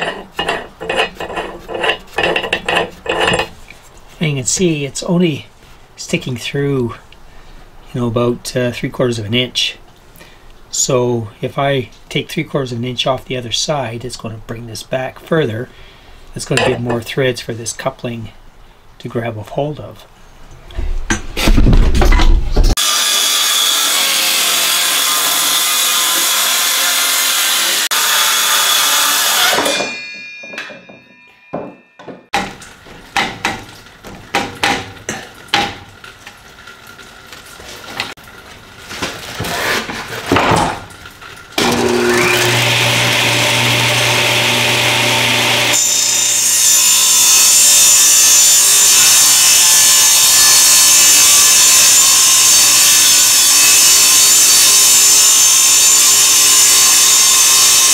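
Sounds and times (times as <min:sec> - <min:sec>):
handheld power saw cutting board: 0:00.0 - 0:03.6, 0:22.7 - 0:33.8, 0:41.6 - 0:57.9
table saw cutting plywood: 0:22.7 - 0:29.8, 0:41.6 - 0:57.9
knocks and handling noise: 0:29.6 - 0:41.0.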